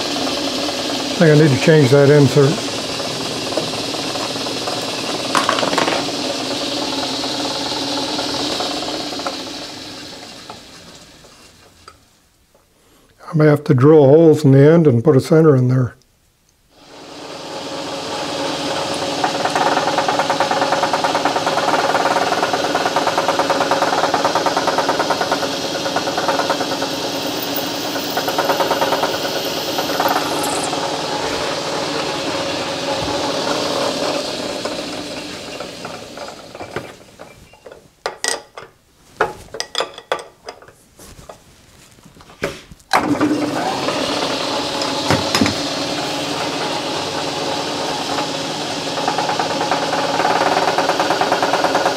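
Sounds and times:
metal lathe running: 0.0s - 12.0s, 16.8s - 37.4s, 43.0s - 51.9s
sharp clicks and knocks: 3.5s - 6.2s.

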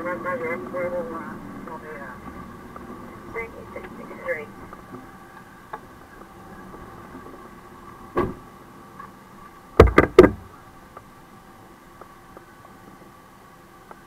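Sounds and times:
truck cab hum: 0.0s - 14.0s
loud sharp thumps: 9.8s - 10.5s.

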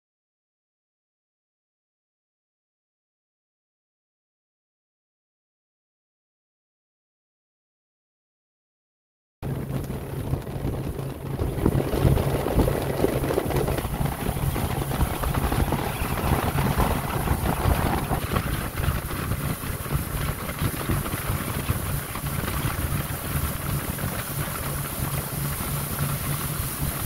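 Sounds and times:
boat engine running: 9.4s - 27.0s
wind noise on microphone: 9.4s - 27.0s.

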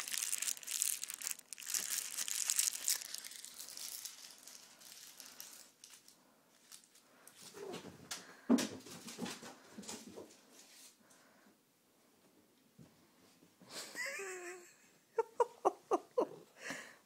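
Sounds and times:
crinkly cat toy crinkling: 0.0s - 7.6s.

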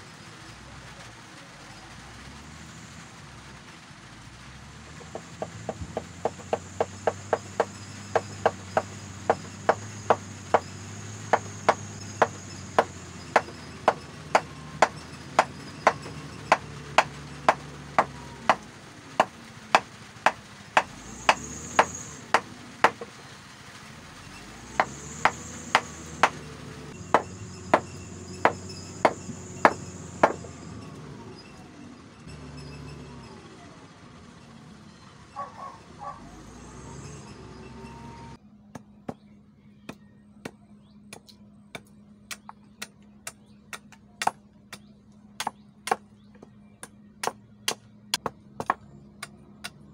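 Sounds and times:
wooden handle knocking on wood block: 5.0s - 10.6s, 11.3s - 18.6s, 27.1s - 30.5s.

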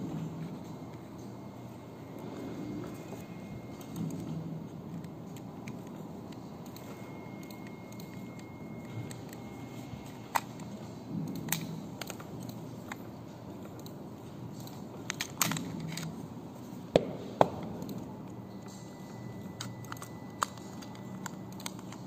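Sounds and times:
metal lock parts clicking: 13.7s - 16.2s, 19.5s - 22.0s.

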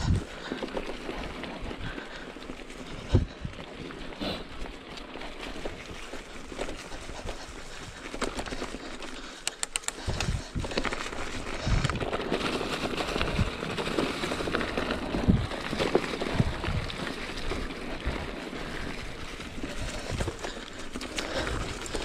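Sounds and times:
bike tyres rolling over leaves: 0.0s - 22.0s
bike clicks and knocks: 7.9s - 16.9s.

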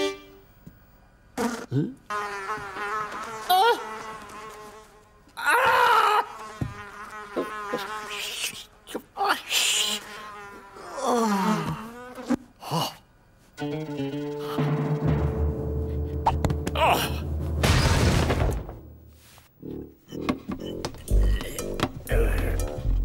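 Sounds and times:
cartoon fly buzzing: 1.4s - 12.5s
man grunting and mumbling: 21.1s - 22.8s.

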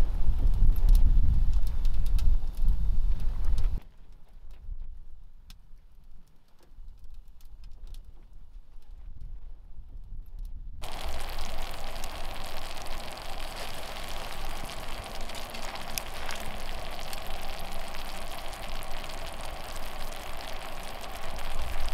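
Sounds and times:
food sizzling in a skillet: 10.8s - 21.9s
sharp pops: 10.8s - 21.9s.

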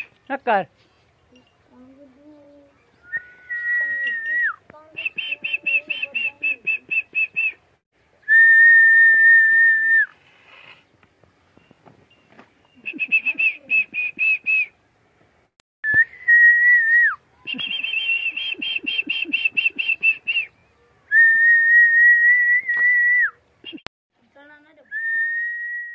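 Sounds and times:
fast trilled whistles: 3.0s - 7.6s, 8.3s - 10.1s, 15.8s - 20.5s
long steady whistled notes: 3.0s - 7.6s, 8.2s - 10.2s, 15.8s - 23.8s, 24.9s - 25.9s.

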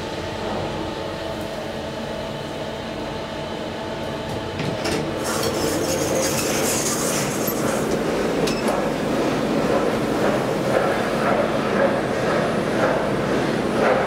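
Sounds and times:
elevator hum: 0.0s - 14.0s
elevator doors opening: 4.4s - 9.4s.

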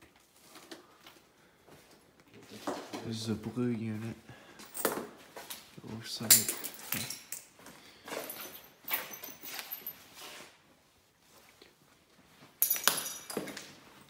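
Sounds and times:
footsteps on hard floor with debris: 12.3s - 14.0s.

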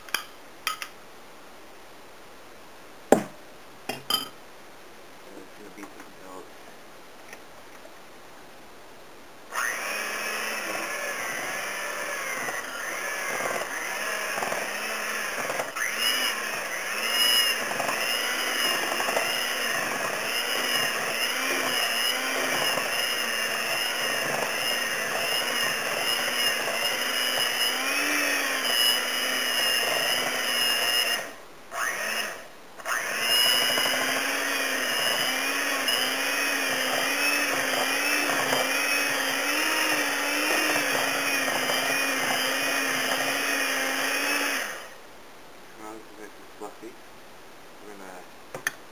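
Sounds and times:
electric mixer running: 9.5s - 45.0s.

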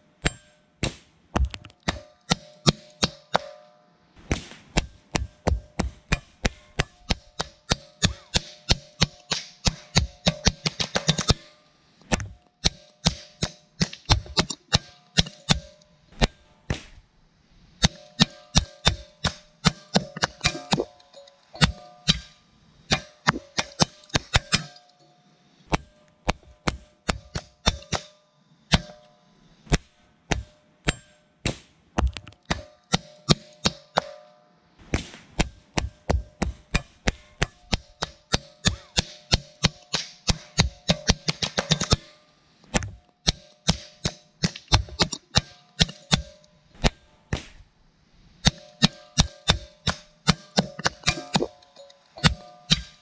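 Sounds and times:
rapid rifle fire: 6.6s - 11.5s.

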